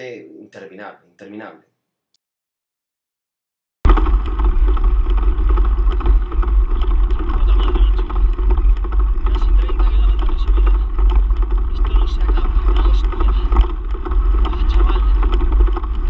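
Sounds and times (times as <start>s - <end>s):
wind buffeting microphone: 3.9s - 16.0s.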